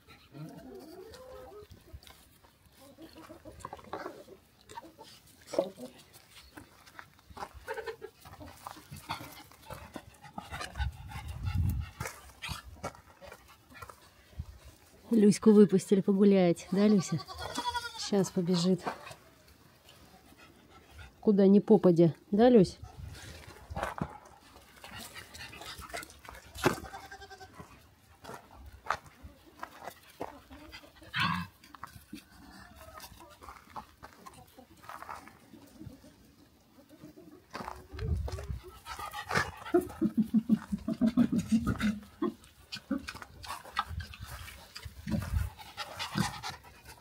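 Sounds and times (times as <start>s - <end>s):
dog panting: 8.2s - 14.3s, 20.1s - 21.3s, 24.6s - 26.5s, 38.4s - 47.0s
goats bleating: 16.7s - 18.2s, 26.7s - 27.7s.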